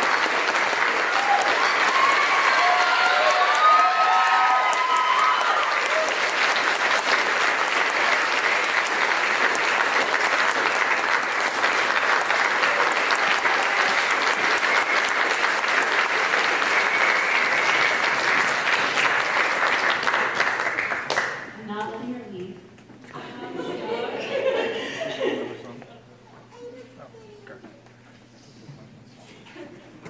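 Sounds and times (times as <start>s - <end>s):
audience applauding: 0.0s - 21.6s.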